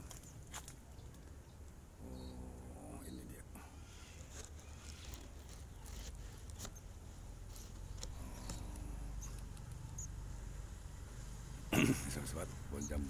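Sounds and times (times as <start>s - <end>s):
leaves rustling: 0.0s - 1.8s, 3.7s - 11.6s
low steady hum: 0.0s - 13.0s.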